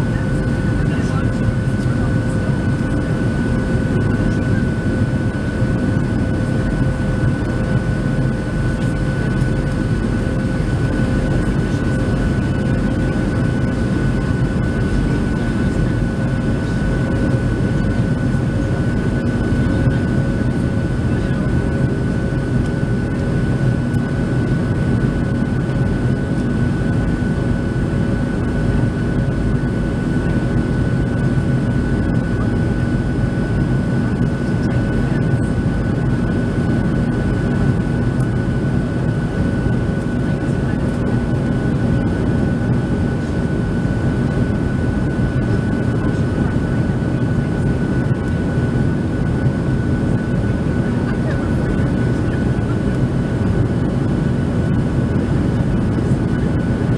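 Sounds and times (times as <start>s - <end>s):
jet engines droning: 0.0s - 56.9s
steady high whine: 0.0s - 56.9s.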